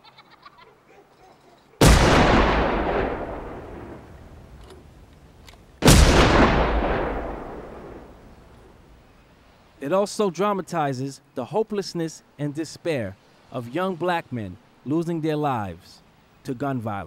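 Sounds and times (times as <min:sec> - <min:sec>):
shotgun blasts with echo: 0:01.8 - 0:04.9, 0:05.8 - 0:08.7.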